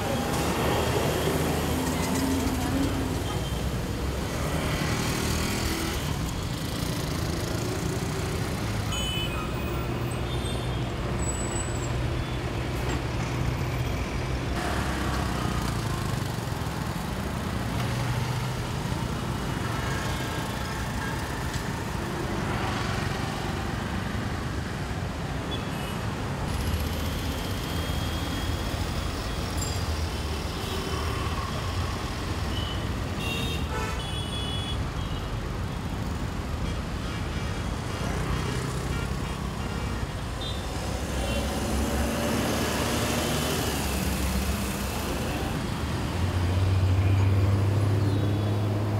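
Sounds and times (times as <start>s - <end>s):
heavy traffic engines: 0.0s - 48.9s.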